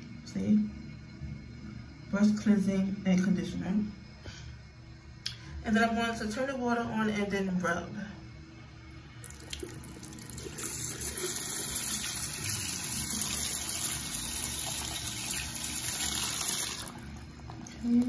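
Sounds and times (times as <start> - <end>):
tap water running: 9.2 - 18.0.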